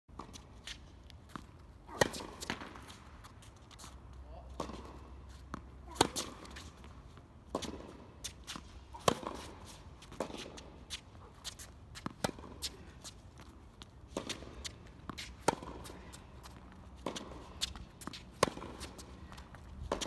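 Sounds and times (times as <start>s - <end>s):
shoes shuffling on court: 0.1s - 20.0s
racket striking tennis ball: 1.4s - 3.2s, 4.5s - 20.0s.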